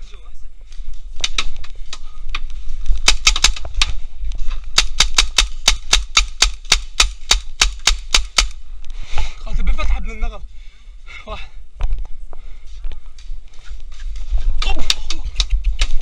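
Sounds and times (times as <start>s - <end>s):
paintball markers firing: 3.0s - 4.0s, 4.7s - 8.6s.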